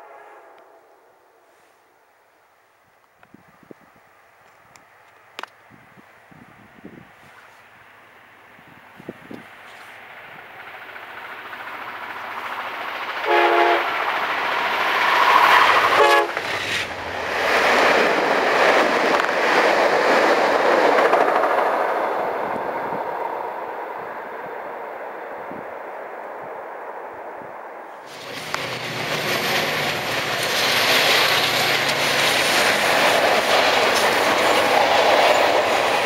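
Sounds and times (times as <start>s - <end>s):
train horn blasts: 0.0s - 1.7s, 13.2s - 14.0s, 15.8s - 16.5s
train rumbling past: 0.0s - 2.3s, 5.6s - 36.0s.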